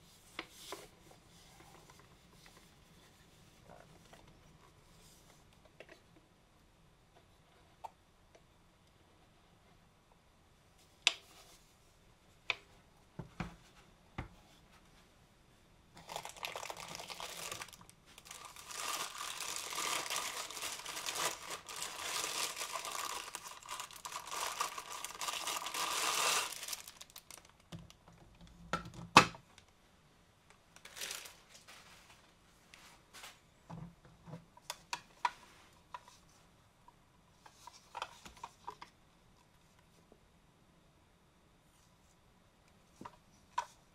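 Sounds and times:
plastic wrapping crinkling: 16.0s - 27.8s, 30.8s - 32.2s.

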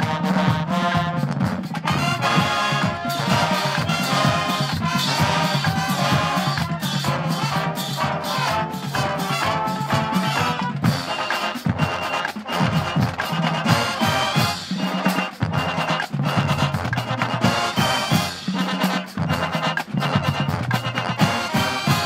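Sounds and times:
marching band brass: 0.0s - 22.0s
steady drum beat: 0.0s - 22.0s.

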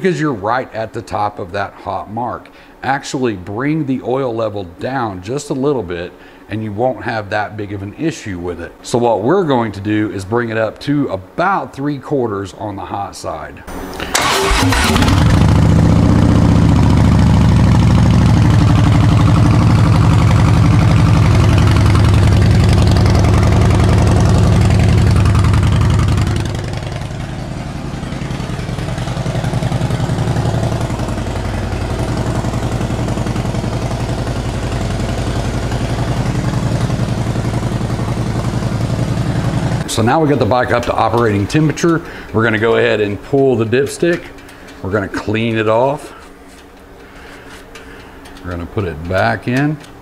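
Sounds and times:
motorcycle engine idling: 13.7s - 43.6s.

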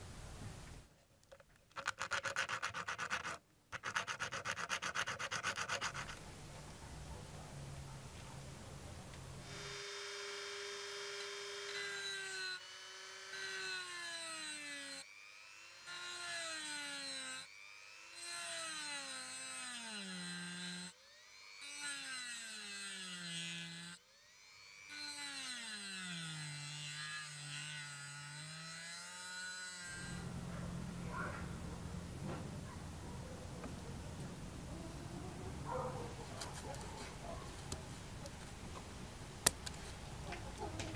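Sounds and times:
rotary tool cutting brass: 1.8s - 6.2s, 9.4s - 24.0s, 24.9s - 30.3s.

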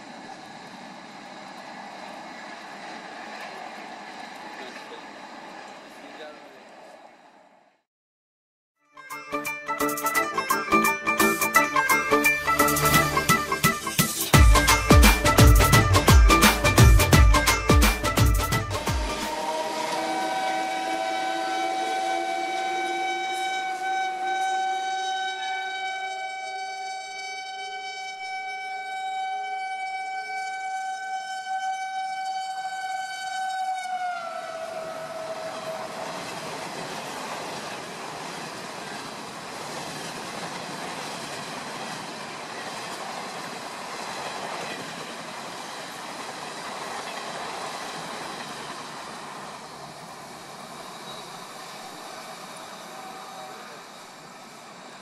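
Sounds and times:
train coaches rushing and rattling: 0.0s - 7.5s, 10.0s - 26.4s, 33.9s - 55.0s
locomotive horn: 10.4s - 36.6s, 52.5s - 54.0s.

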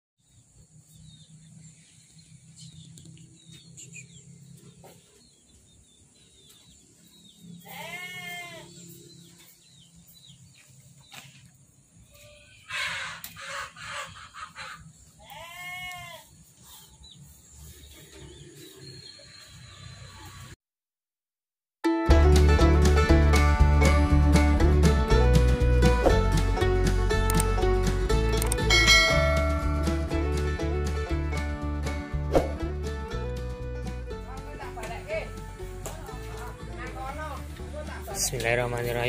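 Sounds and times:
goat bleating: 7.6s - 8.9s, 15.2s - 16.3s.

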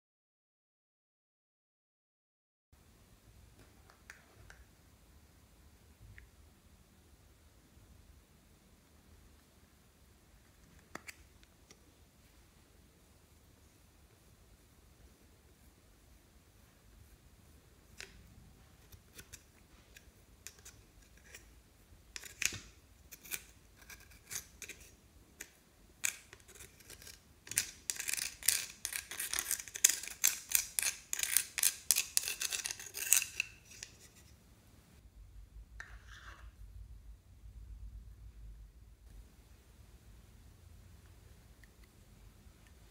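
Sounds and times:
tool scraping powder in a pan: 26.0s - 34.4s.

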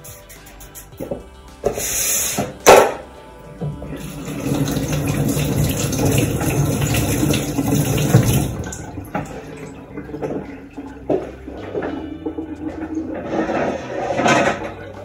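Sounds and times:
tap running into sink: 4.3s - 10.5s.

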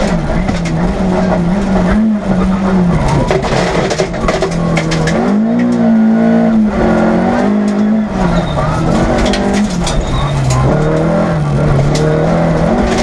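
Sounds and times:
sharp clicks and knocks: 0.0s - 1.8s, 3.0s - 5.9s, 8.8s - 13.0s
rally car engine running hard: 0.0s - 13.0s.

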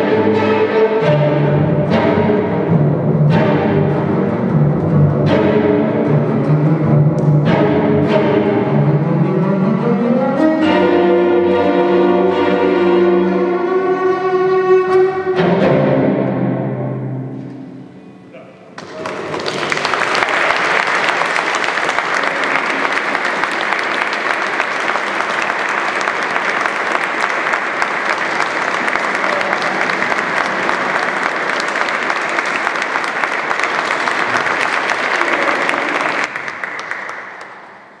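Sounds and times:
audience applauding: 18.8s - 38.0s.

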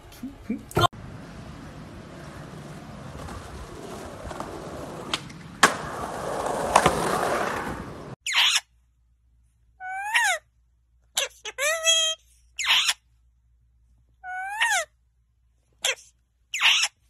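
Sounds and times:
skateboard wheels rolling on concrete: 0.9s - 8.2s
skateboard clacks: 1.0s - 8.2s.

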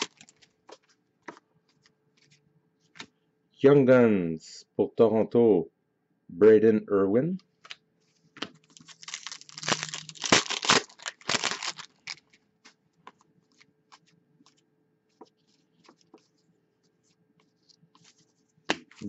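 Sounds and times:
foil wrapper tearing and crinkling: 0.0s - 0.4s, 8.6s - 12.4s.

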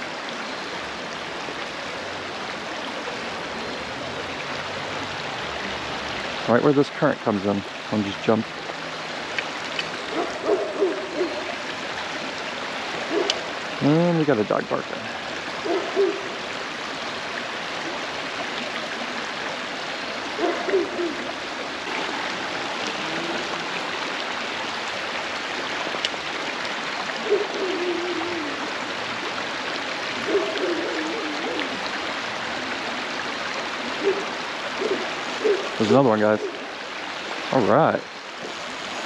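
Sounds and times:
creek water over stones: 0.0s - 39.0s
distant dog barking: 10.1s - 11.6s, 13.0s - 13.5s, 15.6s - 16.4s, 20.4s - 21.3s, 27.2s - 28.6s, 30.2s - 31.7s, 34.0s - 36.6s.

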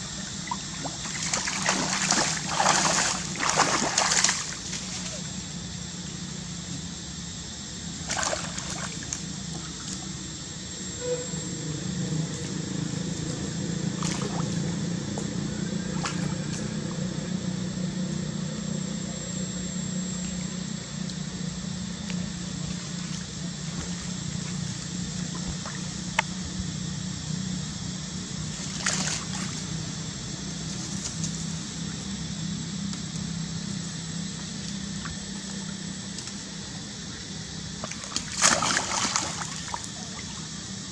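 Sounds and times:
steady low hum: 0.0s - 40.9s
water splashes: 0.4s - 5.2s, 8.0s - 9.2s, 14.0s - 14.6s, 28.6s - 29.6s, 37.8s - 40.5s
water sloshing and trickling: 0.4s - 5.3s, 8.0s - 10.2s, 13.9s - 17.1s, 28.5s - 29.8s, 37.8s - 40.6s.

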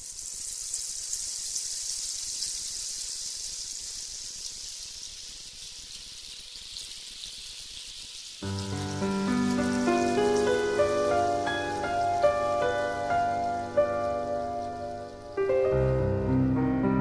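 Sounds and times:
rain falling: 0.0s - 17.0s
music: 8.4s - 17.0s.

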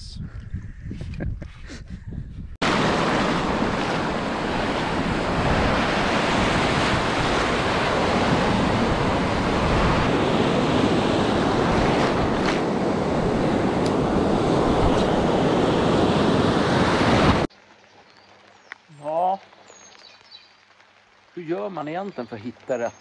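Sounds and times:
wind on microphone: 0.0s - 17.5s
waves breaking: 2.6s - 17.5s.

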